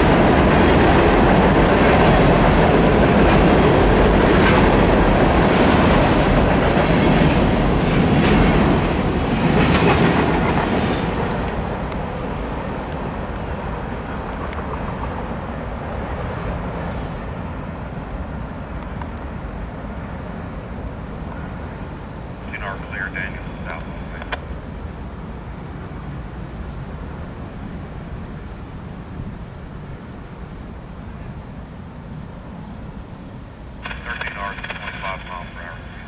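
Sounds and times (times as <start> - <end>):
train rumble: 0.0 - 36.0
train wheels clattering on bridge: 0.1 - 11.8.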